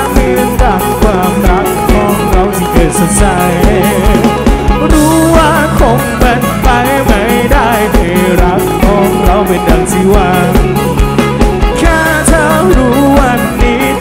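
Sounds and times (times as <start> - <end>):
live band music: 0.0 - 14.0
person singing: 0.0 - 14.0.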